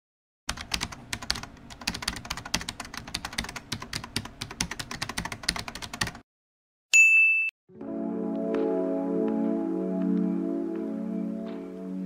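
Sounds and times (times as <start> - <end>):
rapid keyboard typing: 0.5 - 6.2.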